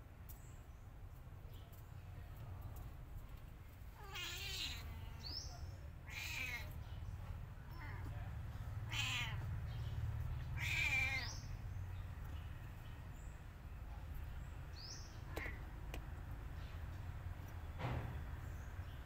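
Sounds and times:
kittens mewing: 4.0 - 5.0, 6.0 - 6.8, 8.8 - 9.6, 10.4 - 11.5.

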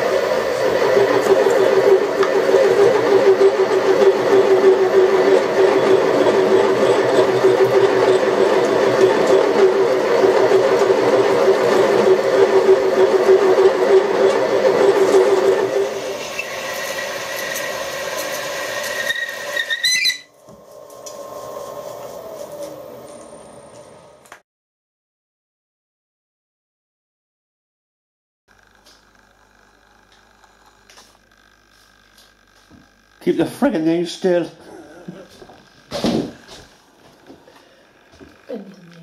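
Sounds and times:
drill cutting through metal: 0.0 - 20.3
thin high whine: 0.0 - 24.4
quiet machine sound: 28.5 - 39.0.

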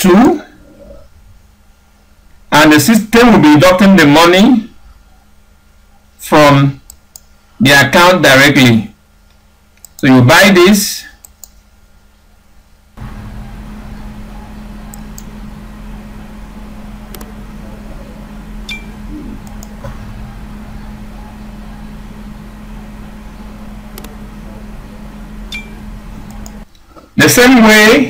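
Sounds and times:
steady low hum: 0.0 - 28.0
faint clicks: 6.8 - 7.3, 9.2 - 10.1, 11.2 - 11.6.

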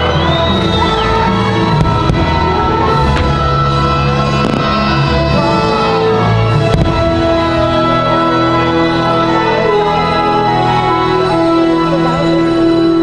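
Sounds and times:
fireworks show soundtrack music: 0.0 - 13.0
firework bursts cracking: 0.2 - 7.8.

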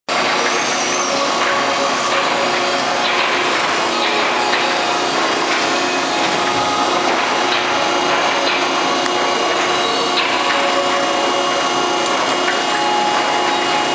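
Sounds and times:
baler machine droning: 0.1 - 13.9
conveyor clatter: 0.1 - 13.9
steady hum: 0.1 - 13.9.

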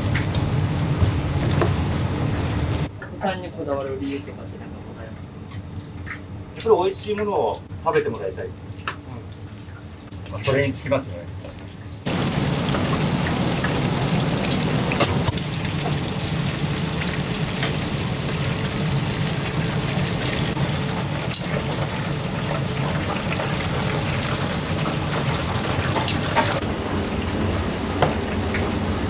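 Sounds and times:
food sizzling in hot oil: 0.0 - 2.9, 12.1 - 29.0.

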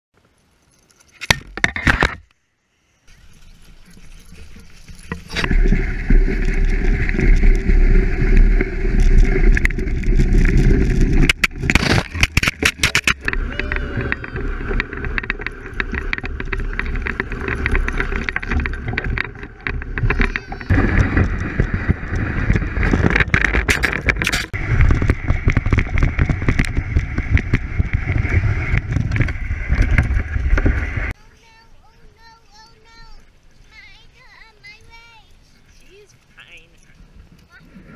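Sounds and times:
wind noise: 3.1 - 31.2, 35.7 - 37.9
sled scraping over snow: 3.1 - 37.9
knocks and rattles: 3.8 - 31.2
deep rumble: 5.3 - 31.2.

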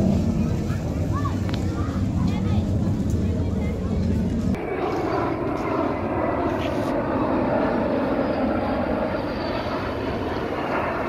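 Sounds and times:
airplane engine roar overhead: 0.0 - 11.0.

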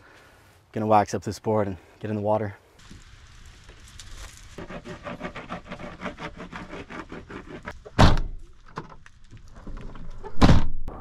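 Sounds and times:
wax rubbing on surfboard: 3.6 - 7.8
loud thump: 8.0 - 8.4, 10.4 - 10.9.

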